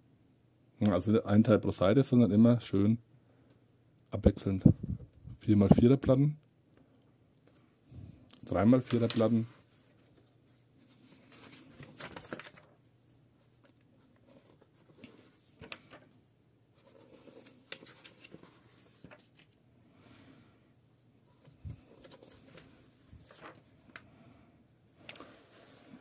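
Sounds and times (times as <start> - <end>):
paper pages turning: 10.8 - 12.8, 13.4 - 16.2, 16.8 - 19.6, 21.4 - 23.7.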